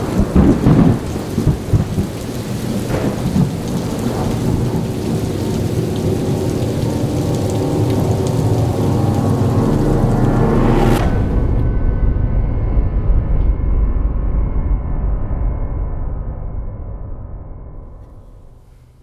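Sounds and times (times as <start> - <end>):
heavy rain: 0.0 - 11.7
thunder rumbling: 0.0 - 14.2.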